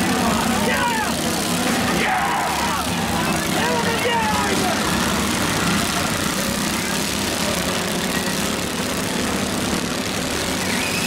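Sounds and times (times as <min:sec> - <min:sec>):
lawnmower engines droning: 0:00.0 - 0:11.0.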